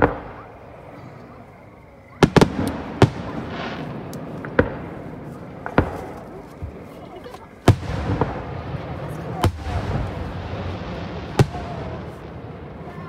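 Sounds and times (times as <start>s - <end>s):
fireworks bangs: 0.0s - 1.0s, 2.1s - 13.0s
firework hiss: 7.6s - 13.0s.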